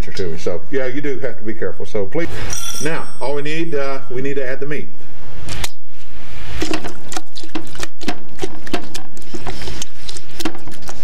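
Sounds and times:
meat clicking in stockpot: 6.6s - 11.0s.

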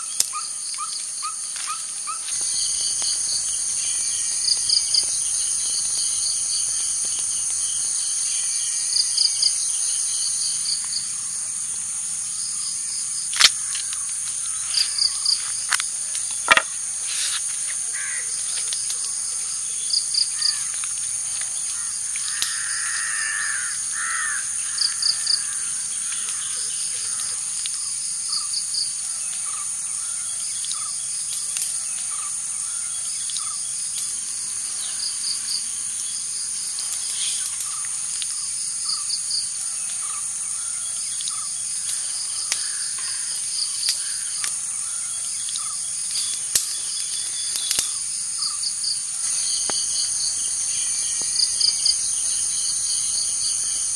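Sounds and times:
insects trilling: 0.0s - 53.9s.

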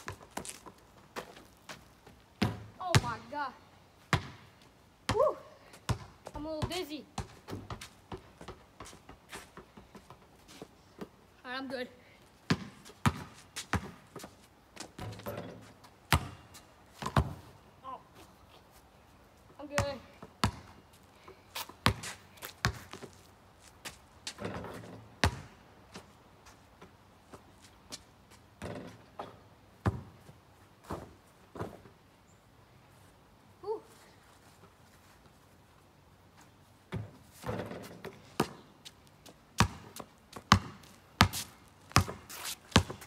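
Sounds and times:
basketball bouncing on pavement: 0.0s - 3.5s, 4.1s - 5.3s, 5.9s - 10.2s, 12.4s - 15.5s, 16.1s - 17.5s, 19.6s - 20.8s, 21.6s - 25.6s, 28.6s - 31.9s, 36.9s - 43.0s
scuffing noise: 42.2s - 43.0s.

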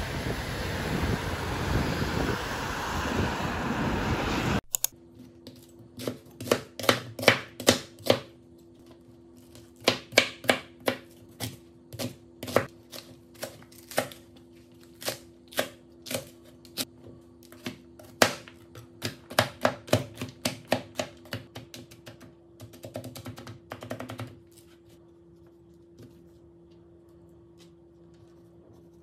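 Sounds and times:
knife chopping on plastic board: 5.5s - 8.4s, 9.5s - 14.2s, 17.5s - 24.4s.

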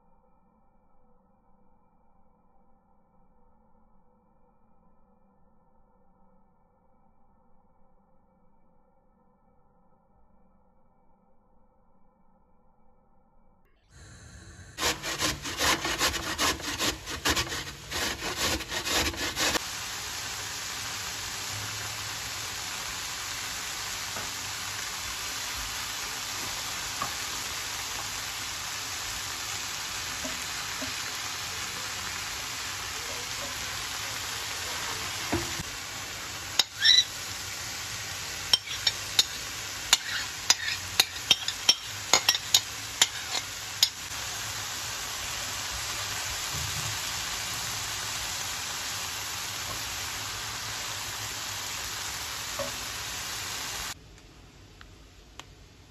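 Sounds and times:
carrot rasping on grater: 14.8s - 19.6s, 38.5s - 43.9s
leeks sizzling in frying pan: 14.8s - 54.0s
utensils tapping against pan: 36.6s - 37.0s, 38.5s - 44.0s, 52.6s - 52.8s.

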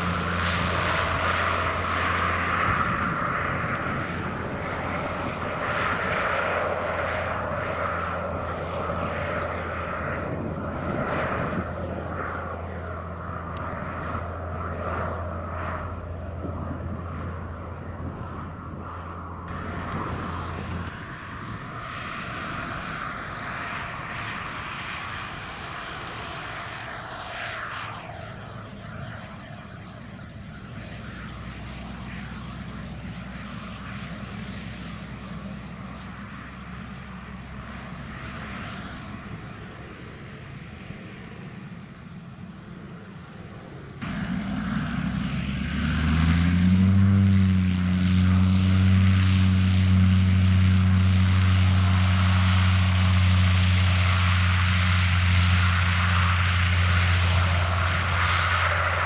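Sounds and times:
distant plane engine humming: 0.0s - 59.0s.

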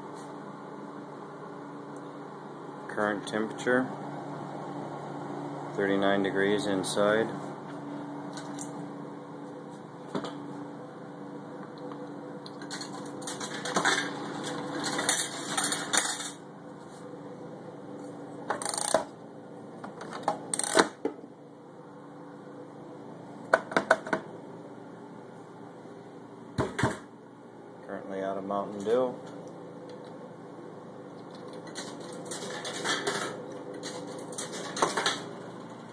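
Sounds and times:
steady hum: 0.0s - 35.9s
coins clinking in vending machine: 12.6s - 16.4s, 31.6s - 35.2s.

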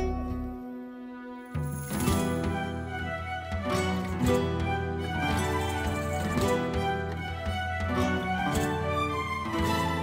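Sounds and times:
instrumental music with soft beat: 0.0s - 10.0s.

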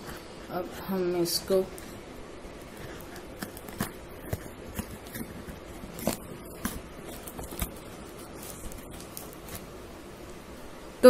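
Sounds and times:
scissors snipping cardboard: 2.8s - 9.7s.

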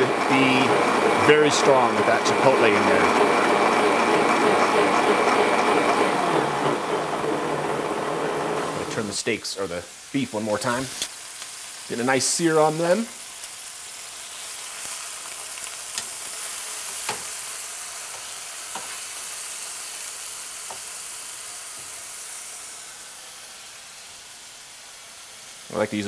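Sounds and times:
meat sizzling in frying pan: 8.9s - 26.0s.

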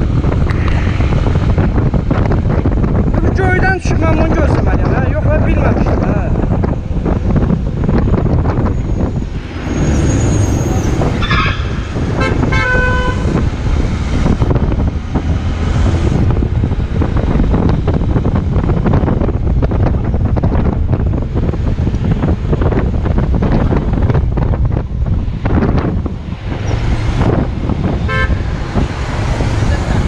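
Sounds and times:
wind buffeting microphone: 0.0s - 30.0s
vehicle horn toots: 11.2s - 13.4s, 28.0s - 28.4s.

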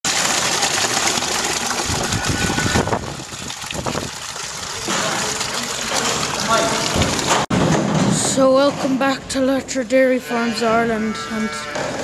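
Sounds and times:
milk gushing into plastic bucket: 0.1s - 7.5s.

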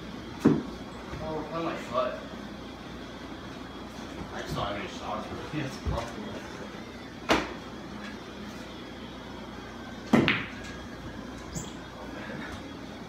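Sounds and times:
pool cue striking ball: 10.0s - 10.8s.

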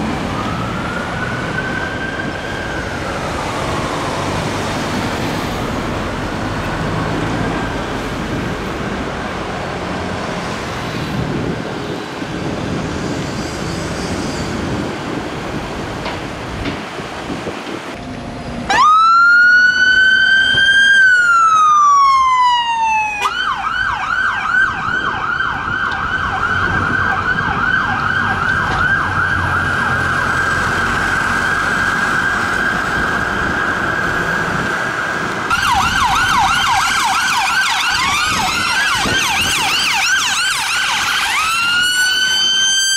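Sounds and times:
street traffic: 0.0s - 42.9s
siren wailing and yelping: 18.7s - 42.9s.

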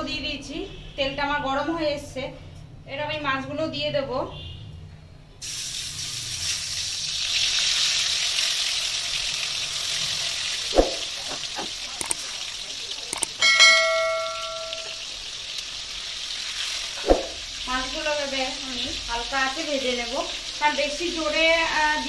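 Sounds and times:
fish sizzling in hot oil: 5.4s - 22.0s
metal utensil knocking pan: 13.3s - 15.0s
ringing metal strike on pan: 13.4s - 15.1s.

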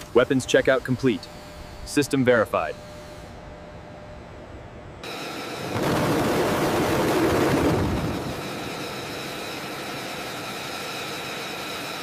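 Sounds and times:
jet engine running: 5.0s - 12.0s.

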